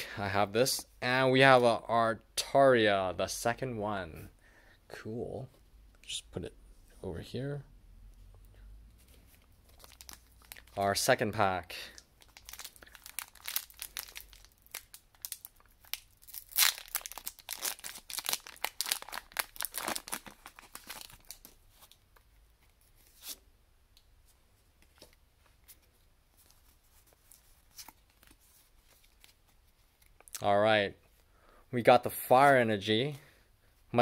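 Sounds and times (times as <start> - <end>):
faint clicks of pack handling: 11.8 - 31.3
foil wrapper tearing and crinkling: 12.2 - 21.6.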